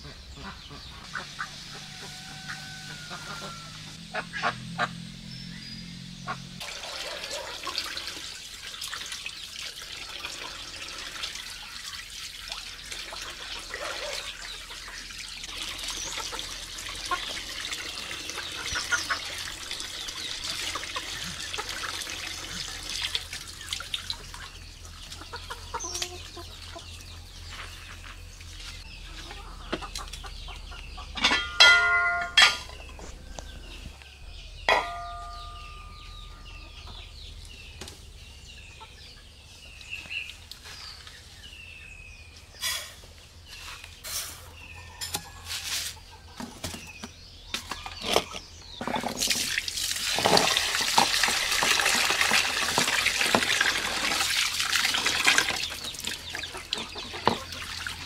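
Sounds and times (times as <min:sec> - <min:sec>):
poultry calling: 0:00.0 - 0:08.0
water pouring into plastic basin: 0:06.6 - 0:24.5, 0:48.8 - 0:58.0.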